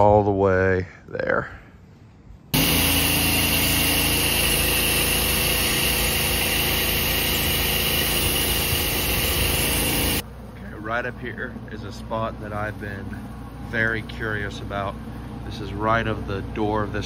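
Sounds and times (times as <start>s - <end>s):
engine hum: 2.5s - 17.0s
pressure washer spray hiss: 2.6s - 10.2s.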